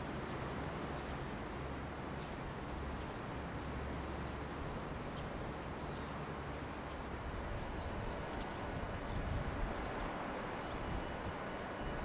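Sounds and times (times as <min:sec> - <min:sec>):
bird calling: 0:08.4 - 0:10.1.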